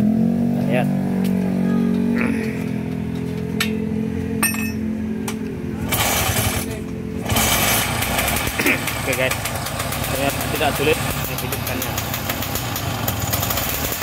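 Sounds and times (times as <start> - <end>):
low engine hum: 0.0 - 14.0
engine catching in loud spurts: 5.8 - 14.0.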